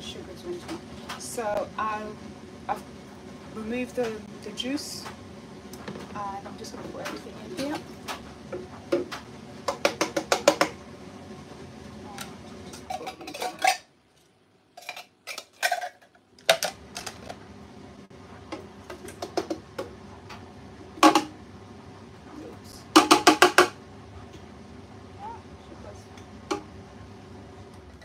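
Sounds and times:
metal tin knocking on blender jug: 8.9 - 10.8.

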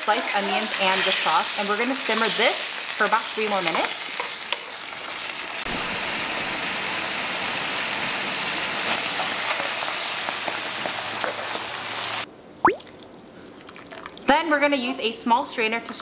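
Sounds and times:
sauce simmering in a frying pan: 0.1 - 12.3.

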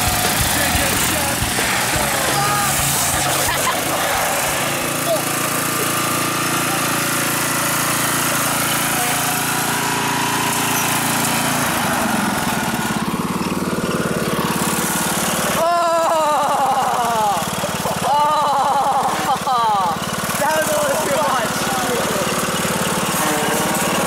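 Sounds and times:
riding lawn mower engine: 0.0 - 24.0
person speaking: 0.4 - 6.0.

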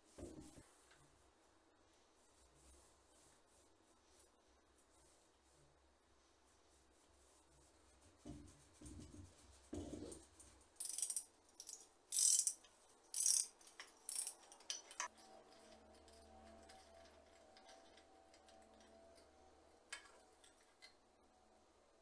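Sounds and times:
sharp metallic scrapes and clicks: 10.8 - 21.0.

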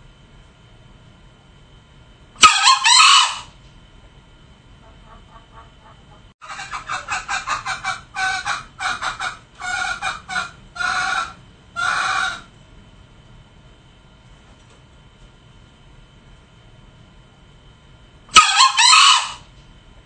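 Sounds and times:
junglefowl calling: 2.4 - 3.5, 4.8 - 12.5, 18.3 - 19.5.

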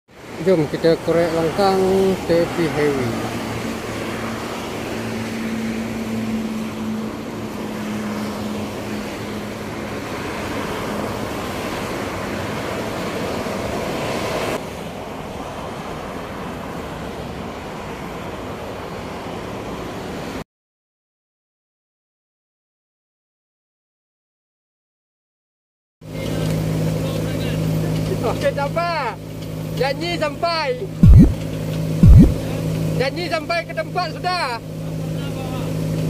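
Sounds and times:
expressway traffic rushing: 0.2 - 20.4
held engine drone: 0.6 - 13.0, 30.8 - 36.0.

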